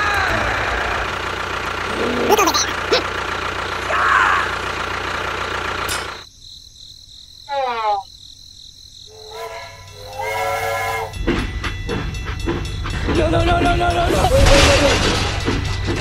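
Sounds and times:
toy train whistle: 9.1 - 11.2.

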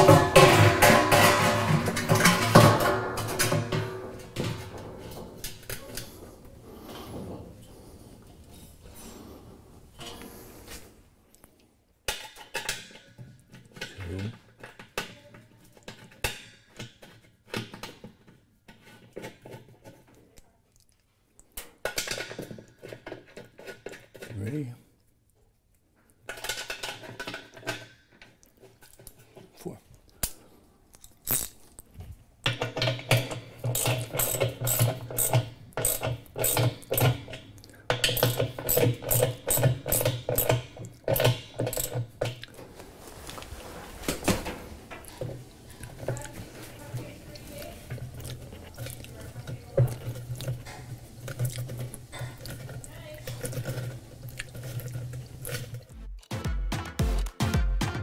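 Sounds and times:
small metal parts clinking: 32.7 - 42.4
ratchet wrench clicking: 33.8 - 36.8.

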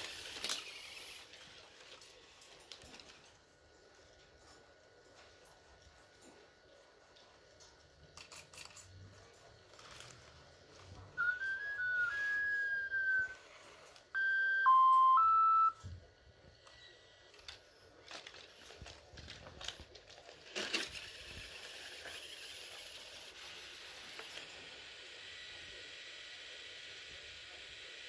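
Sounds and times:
servo clicks and whirring: 0.0 - 2.1, 19.5 - 25.7
robot dog electronic beeps: 14.2 - 15.8.

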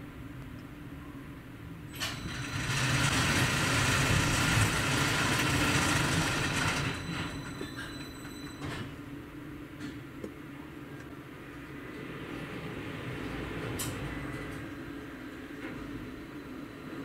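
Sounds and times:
car park machinery rushing: 2.0 - 7.6.

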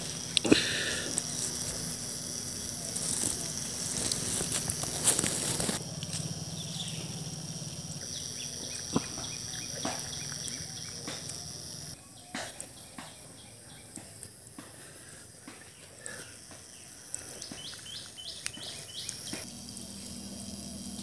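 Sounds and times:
water pump humming: 0.0 - 12.0, 16.4 - 21.0
ticks and chirps outdoors: 0.0 - 21.0.

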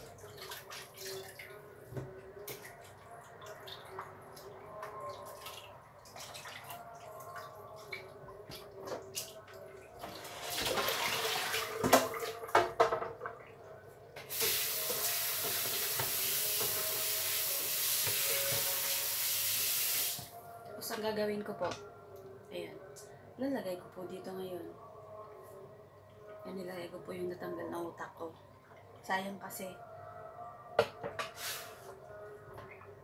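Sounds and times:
water splashing: 0.0 - 1.6, 2.6 - 9.4
tap running into sink: 14.3 - 17.0, 17.8 - 19.1.

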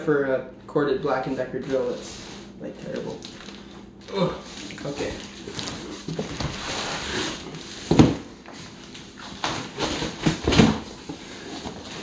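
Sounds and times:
cardboard scraping and rustling: 4.7 - 12.0.

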